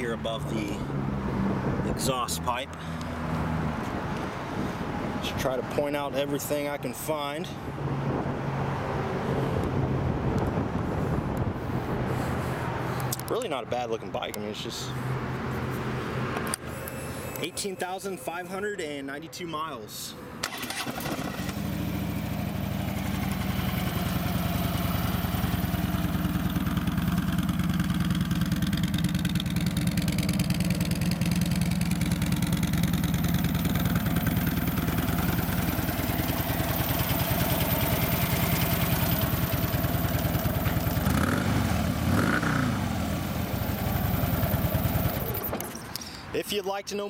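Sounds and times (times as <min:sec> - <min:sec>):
motorcycle engine revving: 0:20.4 - 0:45.5
motorcycle engine idling: 0:21.1 - 0:45.5.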